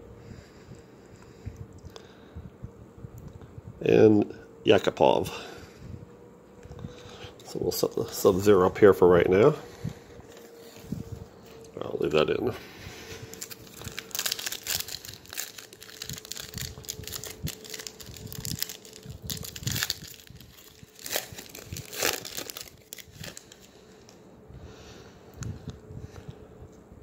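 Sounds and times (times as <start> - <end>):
foil pack crinkling torn open: 13.3 - 23.8.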